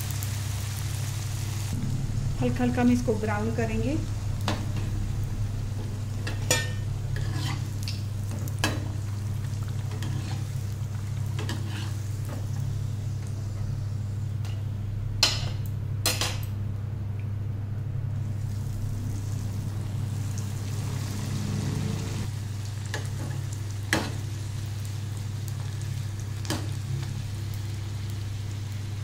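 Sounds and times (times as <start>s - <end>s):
oil sizzling: 0.0s - 14.6s, 18.2s - 29.0s
low hum: 1.6s - 22.3s.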